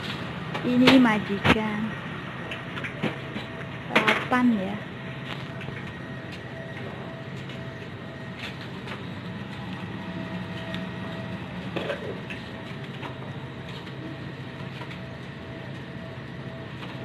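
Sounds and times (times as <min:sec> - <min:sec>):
food stall equipment hum: 0:00.0 - 0:17.0.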